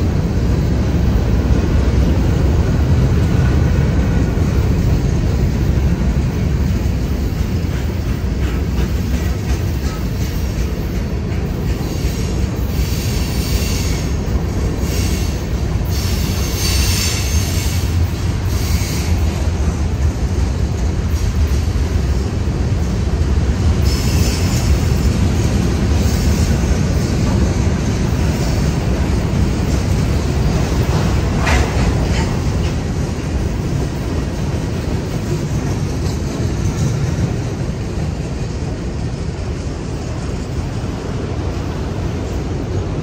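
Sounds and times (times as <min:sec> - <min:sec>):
freight train rumbling past: 0:00.0 - 0:43.0
train wheels squealing: 0:04.0 - 0:19.7, 0:23.7 - 0:32.9.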